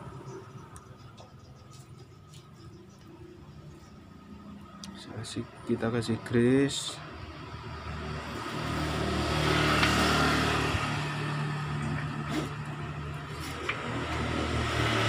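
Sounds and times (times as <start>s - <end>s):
vehicle engine running: 6.0s - 15.0s.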